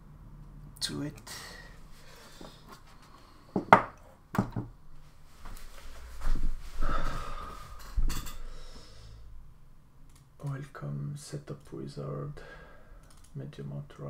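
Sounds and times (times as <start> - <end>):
sharp knocks on workbench: 3.6 - 4.7
rustling: 5.0 - 6.9.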